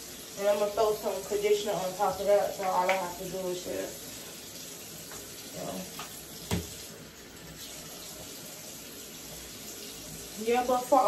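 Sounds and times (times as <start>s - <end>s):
water running from tap: 0.0s - 11.0s.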